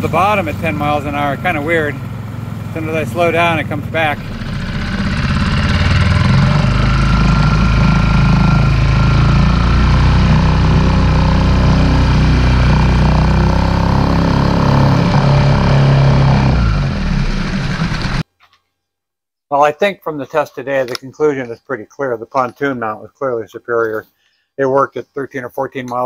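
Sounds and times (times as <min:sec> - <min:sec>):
outboard motor running: 0:00.0 - 0:18.2
water rushing and spraying: 0:00.0 - 0:18.2.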